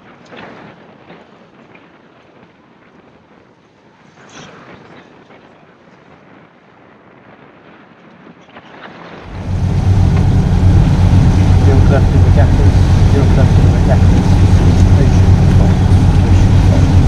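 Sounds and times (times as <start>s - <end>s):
wind and sea rushing: 8.3s - 17.0s.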